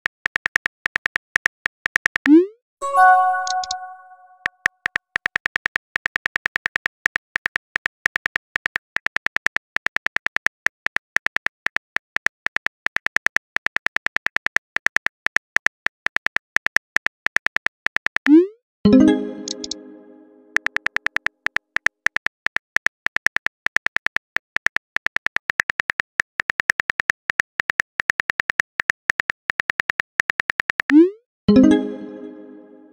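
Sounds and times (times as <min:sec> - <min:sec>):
ringing chime: 0:02.8 - 0:04.4.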